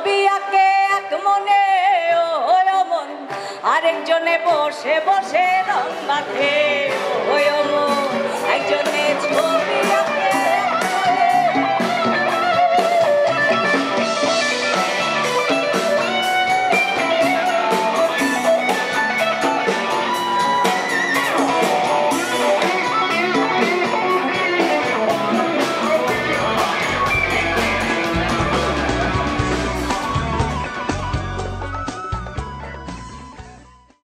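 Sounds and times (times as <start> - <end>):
guitar band music: 3.1 - 34.0
deep bass line: 26.1 - 33.6.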